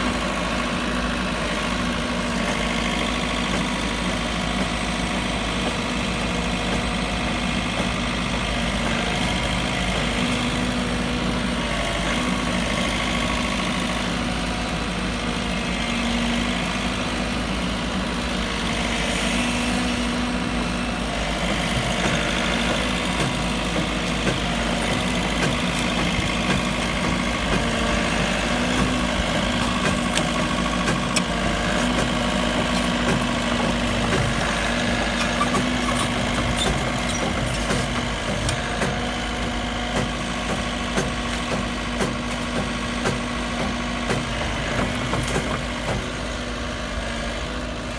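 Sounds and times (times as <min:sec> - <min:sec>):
diesel engine running: 0:00.0 - 0:47.9.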